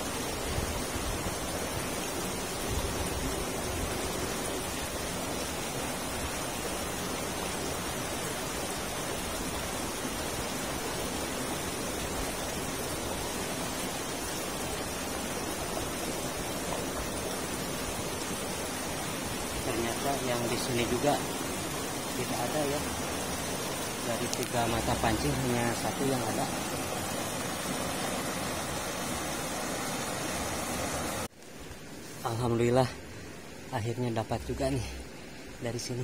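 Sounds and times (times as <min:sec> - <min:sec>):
river rapids rushing over rocks: 0:00.0 - 0:31.3.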